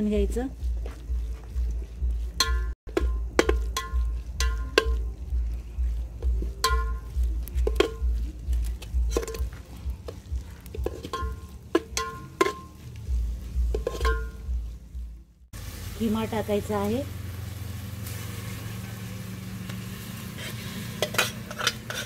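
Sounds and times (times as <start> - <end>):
low steady rumble: 0.0 - 21.1
metal ladle clinking in pot: 2.4 - 5.0, 6.6 - 8.1, 9.1 - 9.5, 10.7 - 12.7, 13.7 - 14.4, 21.0 - 22.0.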